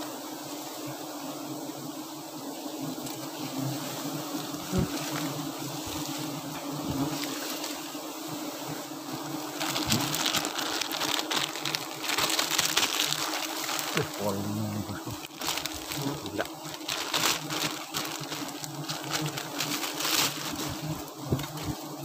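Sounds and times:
honeybees humming: 0.0 - 22.0
dry grass and twigs crackling: 4.4 - 6.4, 7.1 - 8.0, 9.4 - 21.8.

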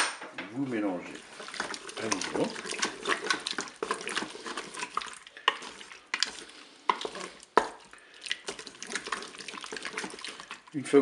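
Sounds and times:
spatula stirring wet food: 0.5 - 11.0
spatula knocking against bowl: 6.9 - 7.8.

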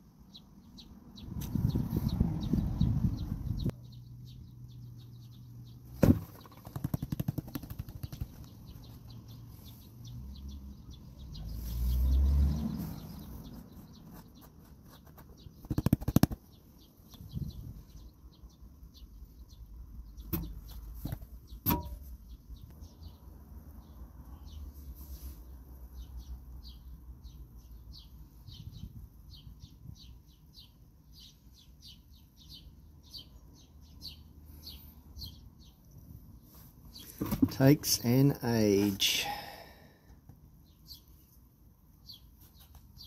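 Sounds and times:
small birds chirping: 0.0 - 43.0
knocks on plastic: 6.0 - 8.4
rapid clicks: 6.3 - 8.6.

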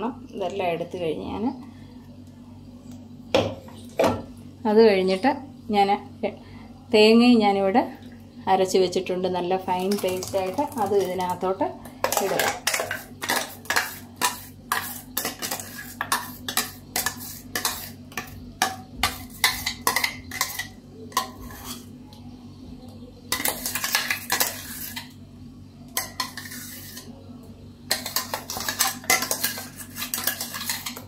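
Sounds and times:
spoon scraping metal jar: 12.2 - 21.9, 26.0 - 27.2, 27.9 - 31.0.

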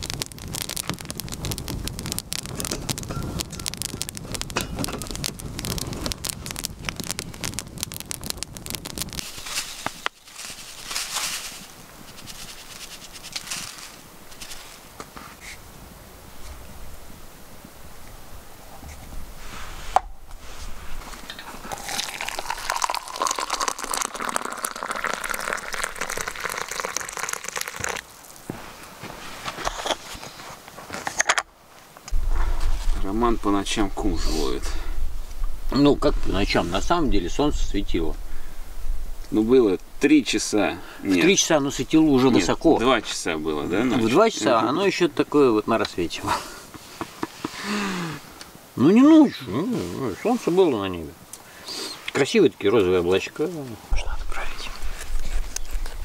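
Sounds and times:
wood fire crackling: 0.0 - 56.0
water pouring into a mug: 21.6 - 28.3.

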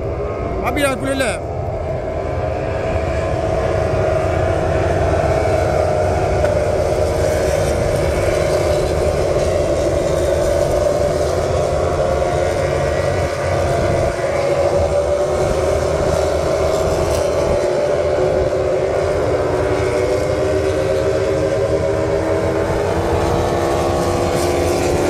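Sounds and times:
racing motorcycle engines droning: 0.0 - 25.0.

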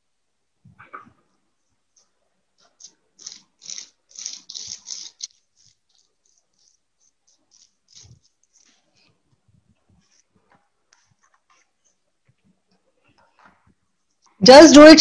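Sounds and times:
paintbrush scratching bubble wrap: 2.0 - 12.1.

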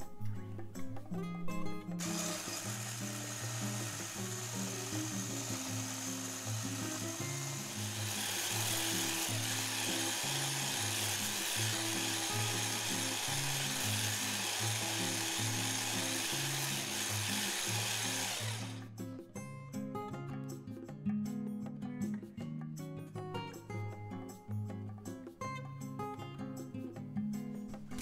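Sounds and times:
guitar music: 0.0 - 28.0
electric whisk motor running: 2.0 - 18.9.

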